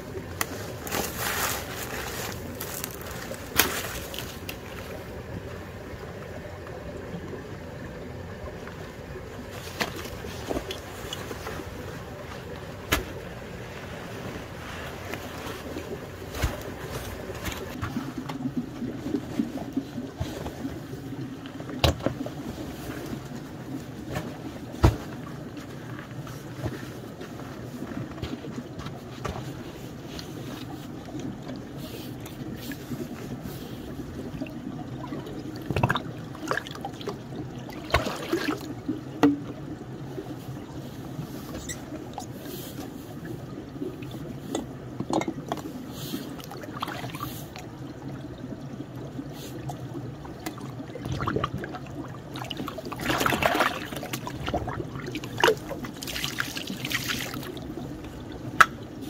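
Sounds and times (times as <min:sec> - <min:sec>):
stream trickling: 0:00.0 - 0:59.0
water poured splashing into stream: 0:00.3 - 0:05.1, 0:35.0 - 0:38.7, 0:50.4 - 0:57.7.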